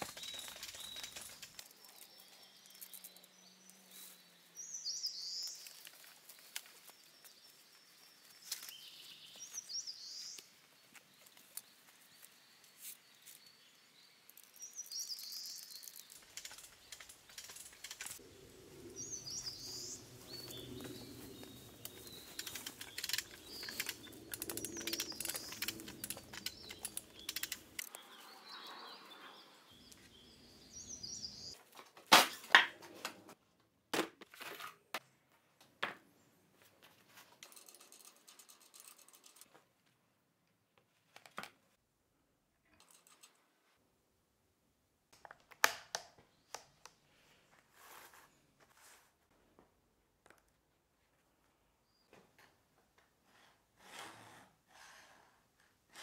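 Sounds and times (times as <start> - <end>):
small birds chirping: 0.0 - 31.6.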